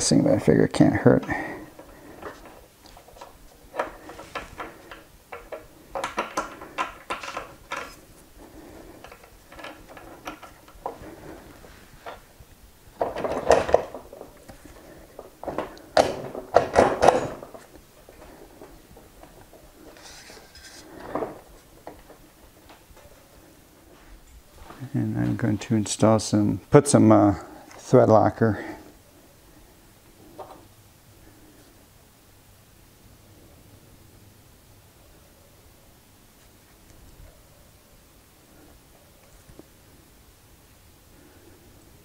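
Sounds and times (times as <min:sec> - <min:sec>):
metal parts clicking and scraping: 0:01.2 - 0:12.3, 0:12.9 - 0:22.2.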